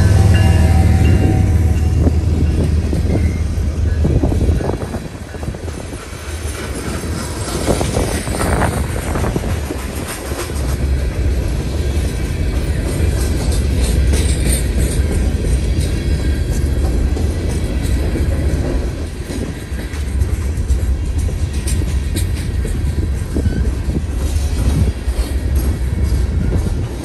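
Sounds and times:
train wheels rumbling on rail: 0.0 - 27.0.

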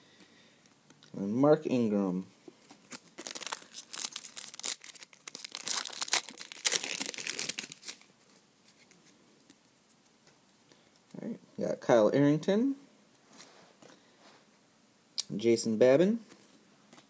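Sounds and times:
foil wrapper tearing and crinkling: 2.9 - 8.1.

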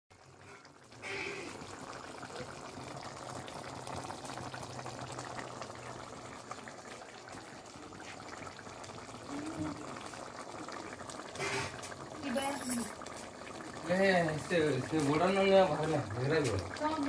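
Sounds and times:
curry bubbling at a simmer: 0.1 - 17.0.

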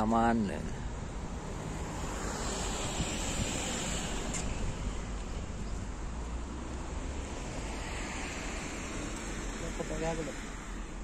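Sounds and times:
street traffic: 0.0 - 11.0
wind on microphone: 1.3 - 5.9.

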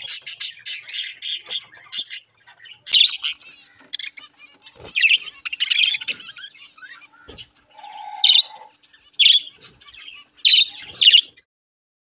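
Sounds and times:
budgerigars chattering and chirping: 0.0 - 11.5.

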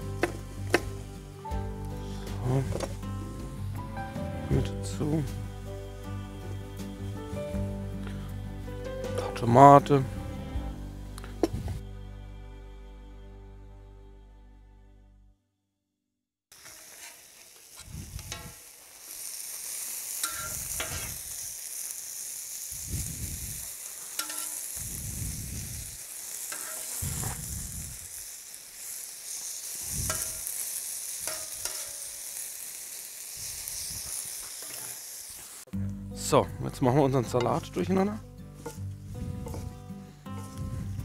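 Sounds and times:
chicken sizzling on hot plate: 0.0 - 1.4, 16.5 - 35.7, 38.5 - 40.7
metal spatula scraping plate: 26.5 - 27.4
dull low thumps: 39.0 - 39.9, 40.6 - 41.0.

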